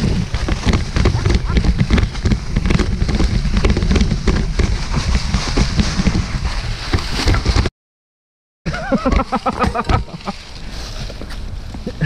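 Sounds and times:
bike clattering over bumps: 0.0 - 7.7, 8.9 - 11.9
tyres crunching through leaves: 8.8 - 12.0.

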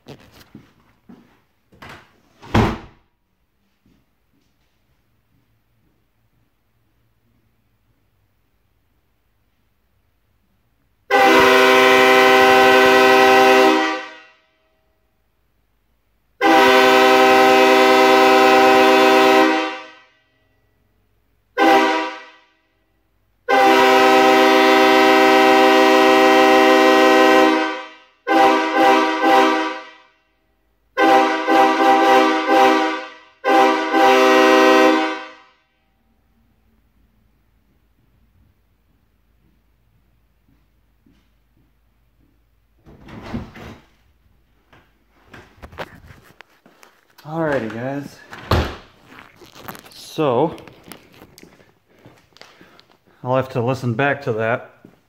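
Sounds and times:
locomotive air horn blasts: 11.1 - 15.0, 16.4 - 20.8, 21.5 - 36.1.

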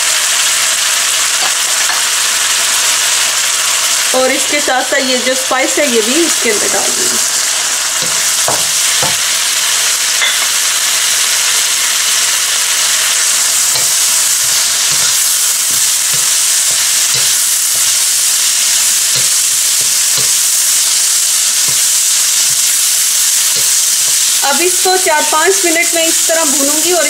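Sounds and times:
vegetables sizzling in a wok: 0.0 - 27.0
wooden spatula knocking pan: 8.0 - 9.3.

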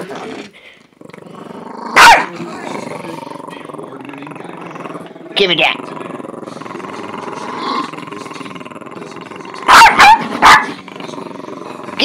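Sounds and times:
small dog growling: 0.0 - 12.0
dog barking: 2.0 - 2.3, 9.7 - 10.8.

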